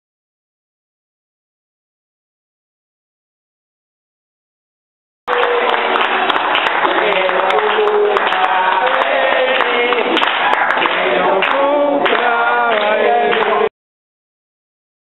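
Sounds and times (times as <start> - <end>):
group of people singing: 5.3 - 13.7.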